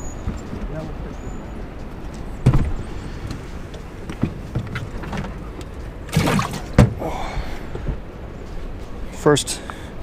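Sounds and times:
clatter in a boat: 0:03.8 - 0:07.0
water washing: 0:06.0 - 0:07.0.

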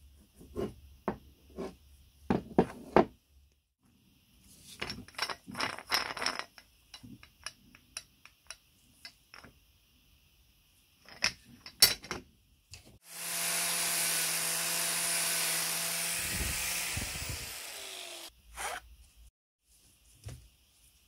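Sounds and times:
angle grinder grinding metal: 0:13.0 - 0:18.8.

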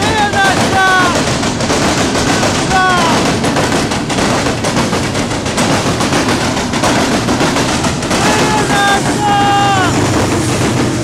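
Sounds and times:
train wheels clattering on rails: 0:00.0 - 0:11.0.

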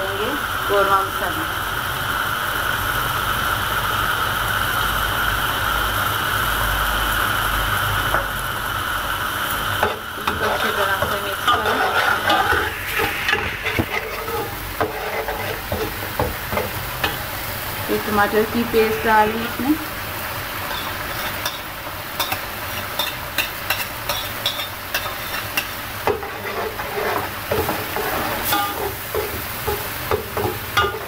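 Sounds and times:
oil and paste sizzling in a pot: 0:00.0 - 0:31.0
spoon scraping and clinking a pot: 0:10.2 - 0:17.2, 0:20.7 - 0:29.8, 0:30.4 - 0:31.0.

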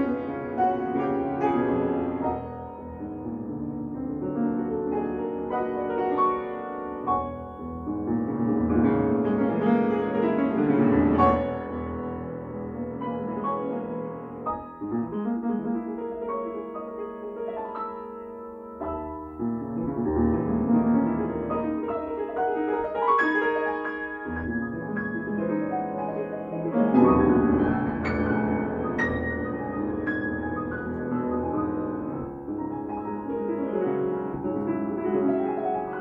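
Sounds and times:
grand piano playing: 0:00.0 - 0:36.0.

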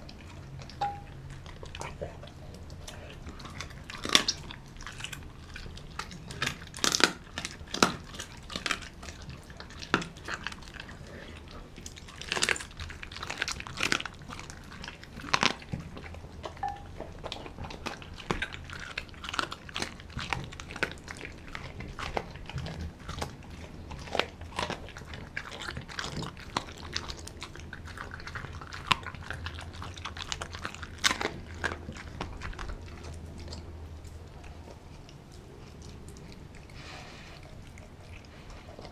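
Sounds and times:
dog chewing raw meat: 0:00.0 - 0:38.9.

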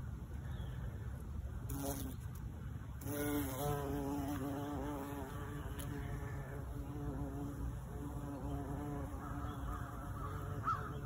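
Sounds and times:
bumblebee buzzing: 0:01.7 - 0:02.4, 0:03.0 - 0:11.0.

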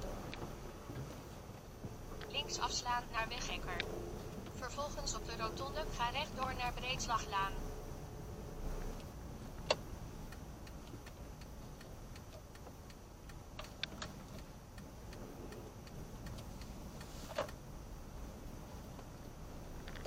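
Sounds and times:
engine and road rumble: 0:00.0 - 0:20.0
turn signal ticking: 0:08.8 - 0:20.0.

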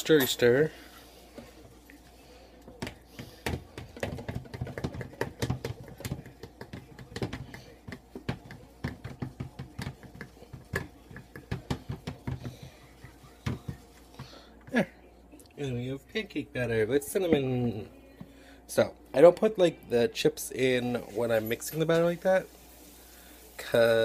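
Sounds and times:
cup knocking against bowl: 0:02.8 - 0:12.6.

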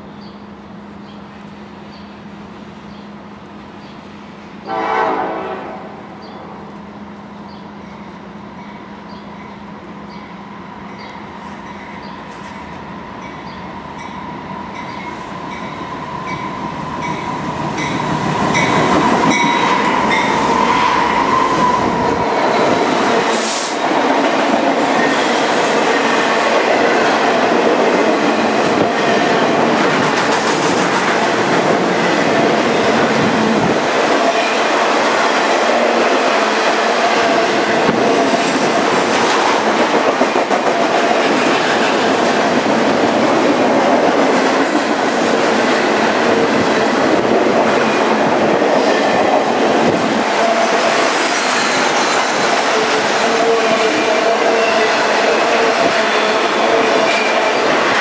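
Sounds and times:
diesel locomotives passing: 0:00.0 - 0:58.0
rumble and clack of rail cars: 0:00.0 - 0:58.0
train air horn blast: 0:04.6 - 0:06.1, 0:52.6 - 0:57.7.

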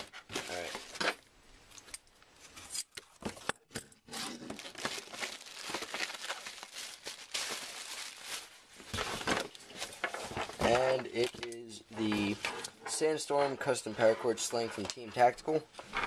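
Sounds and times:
plastic bag crinkling: 0:04.1 - 0:11.5.

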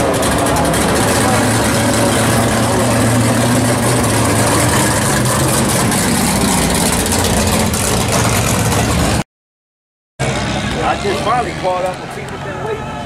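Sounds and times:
car engine idling loudly: 0:00.0 - 0:09.2.

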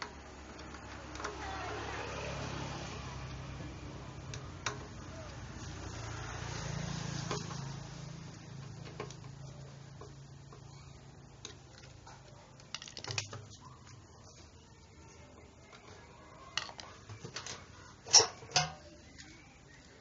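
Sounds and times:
hand tool tapping metal: 0:16.6 - 0:19.0.

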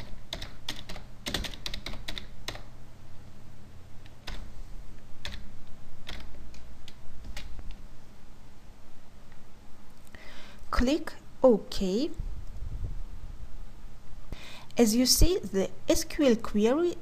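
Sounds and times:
computer keyboard typing: 0:00.0 - 0:02.7, 0:04.0 - 0:04.5, 0:05.2 - 0:07.8.

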